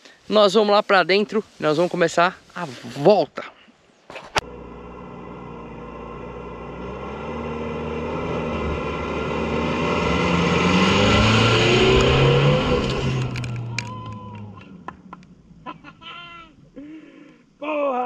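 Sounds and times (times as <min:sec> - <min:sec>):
pickup engine accelerating: 0:04.4 - 0:16.0.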